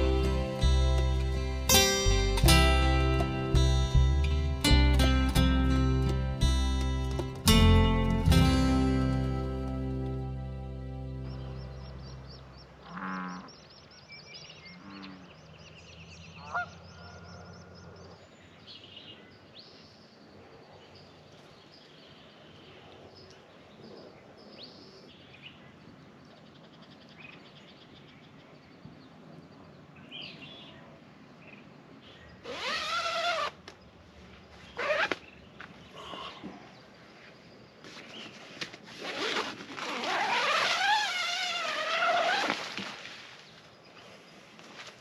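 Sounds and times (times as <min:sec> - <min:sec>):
small birds chirping: 0:11.0 - 0:38.8.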